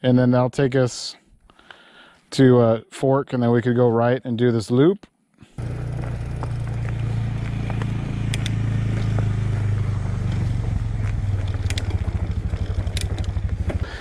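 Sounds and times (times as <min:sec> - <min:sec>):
motorcycle engine idling: 0:05.6 - 0:14.0
light clicks: 0:08.3 - 0:08.6.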